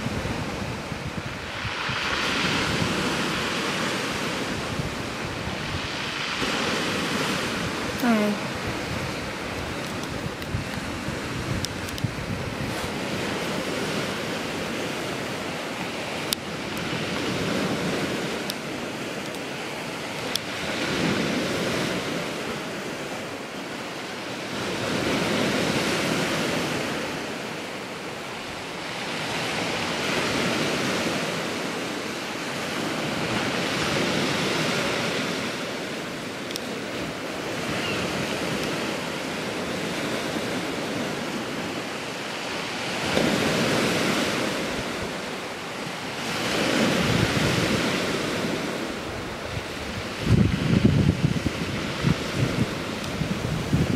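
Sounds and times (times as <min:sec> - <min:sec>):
sea surf washing: 0:00.0 - 0:53.9.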